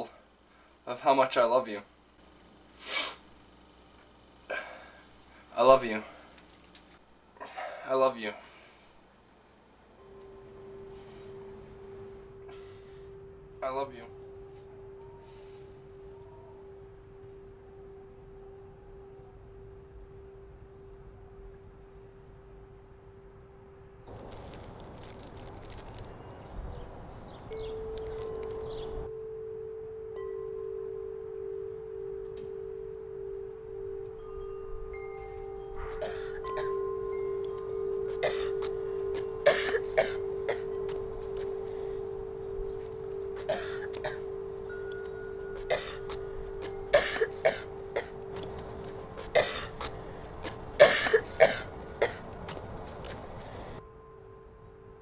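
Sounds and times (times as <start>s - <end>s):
high ringing notes: 8.8s - 24.1s, 25.7s - 55.0s
sustained chime-like tone: 9.9s - 24.1s, 27.4s - 55.0s.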